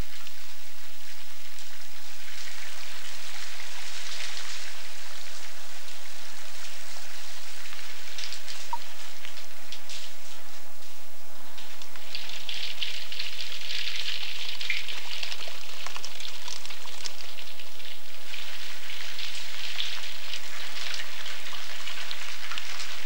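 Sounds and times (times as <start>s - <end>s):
water dripping from rock: 11.8s - 18.4s.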